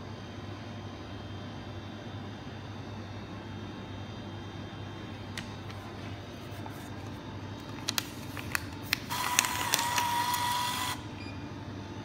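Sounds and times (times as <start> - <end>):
bill acceptor motor whir: 8.2 - 12.0.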